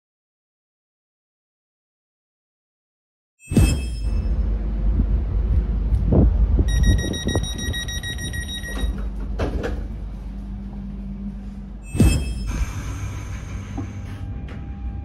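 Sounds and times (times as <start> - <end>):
train door warning beeper: 3.4 - 4.5, 6.7 - 9.3, 11.8 - 15.0
low carriage rumble: 3.8 - 15.0.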